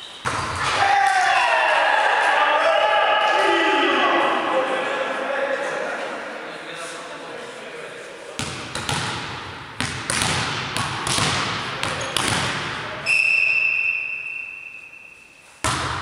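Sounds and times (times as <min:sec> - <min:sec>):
volleyball bouncing on floor: 0:08.4 - 0:12.8, 0:15.6 - 0:16.0
referee whistle: 0:13.0 - 0:15.5.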